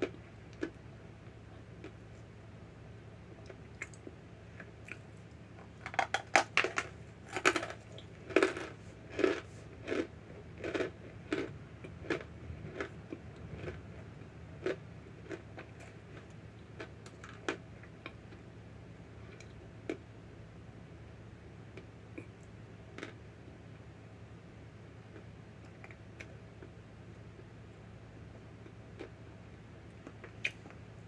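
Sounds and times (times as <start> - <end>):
crisp crunches of chewing: 3.3 - 18.4, 23.0 - 23.2.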